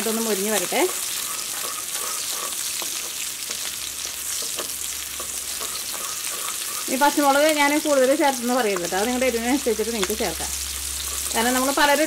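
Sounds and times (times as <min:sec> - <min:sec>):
chillies sizzling in hot oil: 0:00.0 - 0:12.0
wooden spatula scraping pan: 0:00.6 - 0:03.6, 0:04.4 - 0:07.1.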